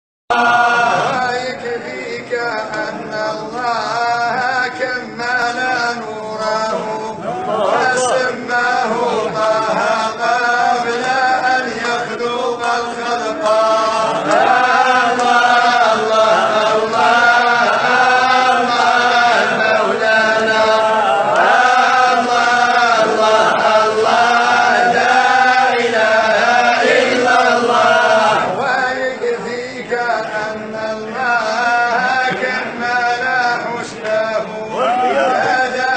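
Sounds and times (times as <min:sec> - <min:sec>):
man chanting: 0:01.0 - 0:14.2.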